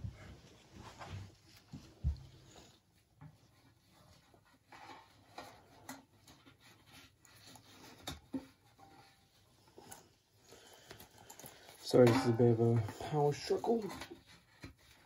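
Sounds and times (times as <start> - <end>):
rubbing and scraping in metal canister: 3.4 - 15.0.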